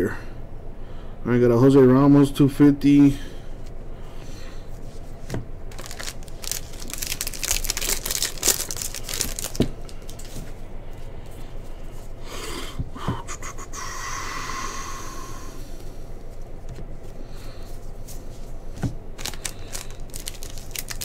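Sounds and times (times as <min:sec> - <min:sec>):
trading cards rustling in plastic sleeves: 0:04.7 - 0:11.8, 0:16.2 - 0:21.0.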